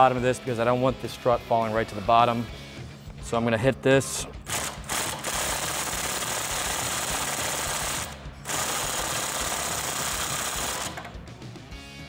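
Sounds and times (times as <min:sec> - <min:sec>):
impact wrench hammering on nut: 0:04.4 - 0:11.1.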